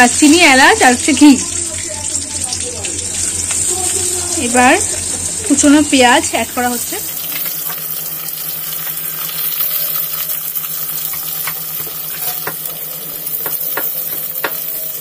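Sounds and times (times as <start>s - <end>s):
onions sizzling in hot oil: 0.0s - 15.0s
metal spatula scraping a pan: 10.9s - 12.6s.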